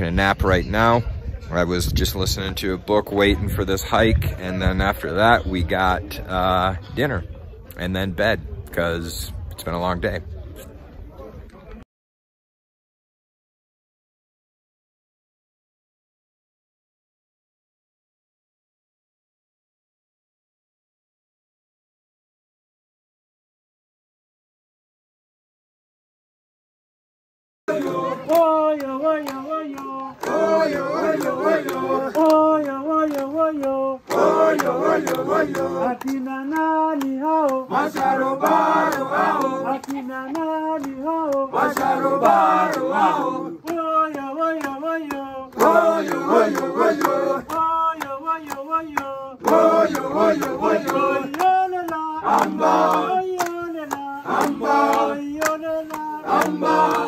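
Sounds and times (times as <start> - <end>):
group singing unaccompanied: 27.7 - 57.0
hand claps: 27.8 - 57.0.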